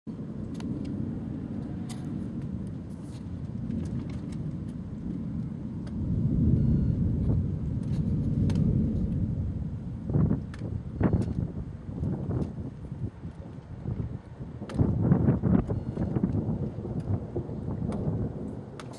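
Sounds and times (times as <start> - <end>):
thunder rumbling: 0.1 - 18.9.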